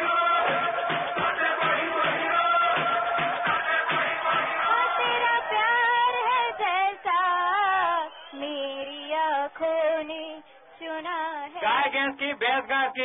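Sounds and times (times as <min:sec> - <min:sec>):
woman singing: 0:04.2 - 0:13.0.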